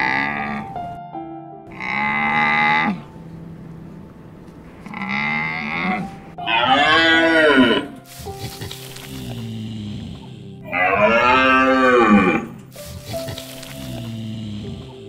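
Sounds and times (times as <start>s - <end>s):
animal calling: 1.7s - 3.1s, 4.8s - 15.0s.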